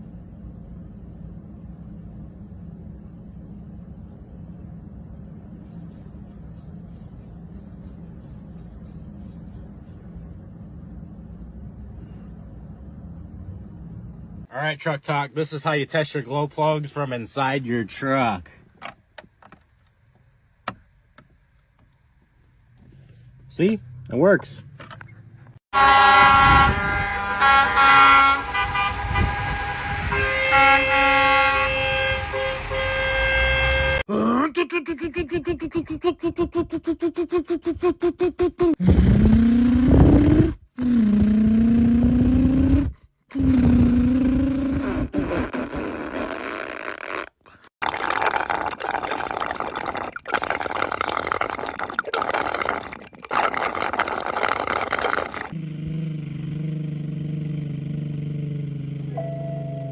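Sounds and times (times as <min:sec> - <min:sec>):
low background rumble: 0:00.0 - 0:30.4
car horns honking: 0:25.7 - 0:34.1
spray bottle squirts: 0:48.6 - 0:55.5.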